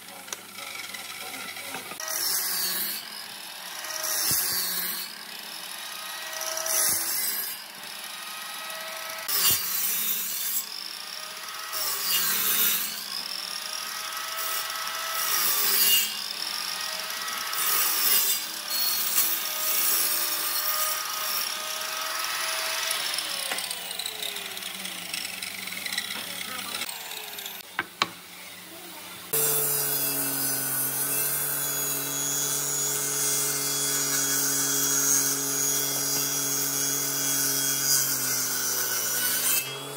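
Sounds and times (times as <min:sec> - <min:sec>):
miter saw cutting wood: 0:00.0 - 0:39.9
table saw motor running: 0:00.2 - 0:28.0, 0:29.2 - 0:39.9.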